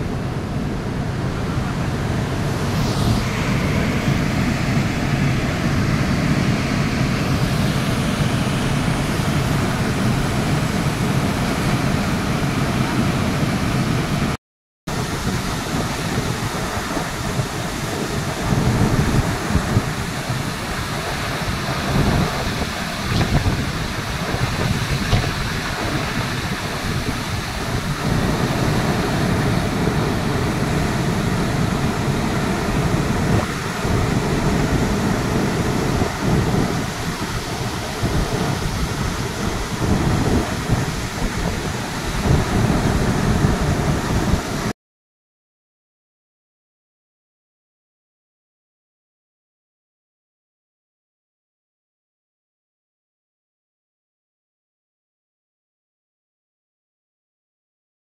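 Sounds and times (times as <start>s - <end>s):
waterfall roaring: 0.0s - 44.7s.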